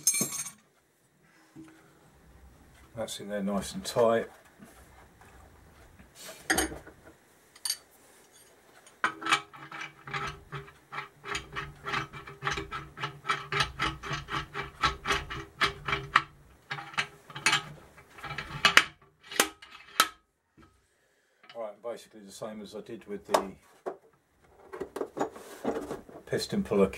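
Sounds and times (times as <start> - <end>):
metal clicking and rattling: 8.9 - 20.2.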